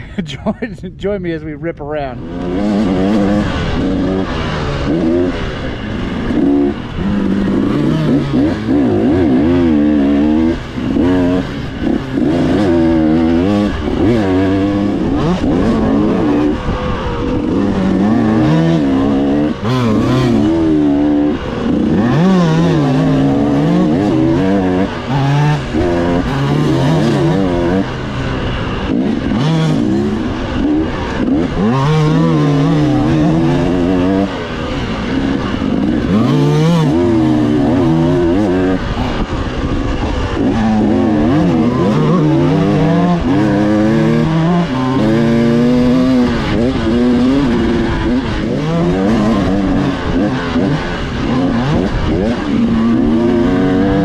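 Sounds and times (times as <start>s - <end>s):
dirt bike engine revving: 1.7s - 54.0s.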